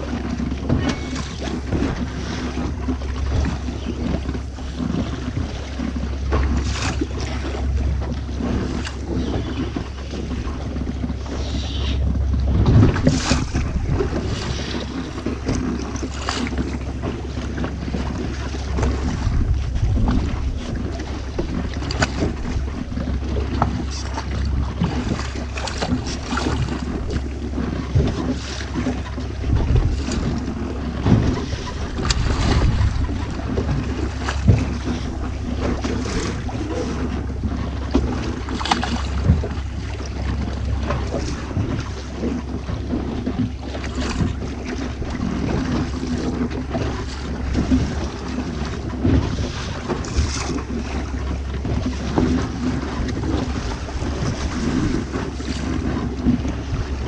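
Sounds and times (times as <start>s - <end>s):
steady low rumble: 0.0s - 57.0s
water sloshing: 0.0s - 57.0s
wind buffeting microphone: 0.0s - 57.0s.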